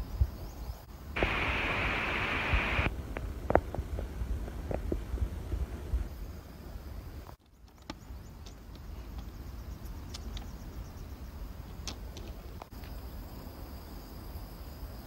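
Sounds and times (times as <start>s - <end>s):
wind rumble on microphone: 0.0s - 7.4s
steady hiss: 0.9s - 7.3s.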